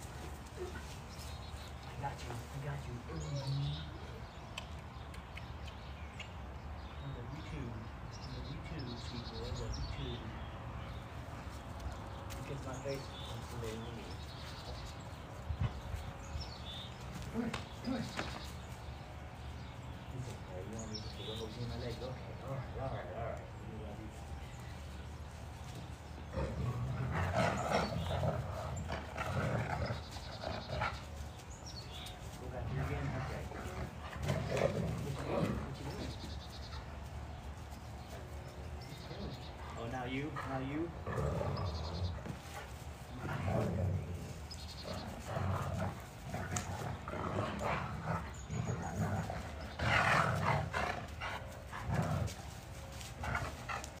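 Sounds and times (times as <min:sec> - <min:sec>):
dogs play-growling and snarling: 0:10.9 - 0:23.5, 0:24.8 - 0:54.0.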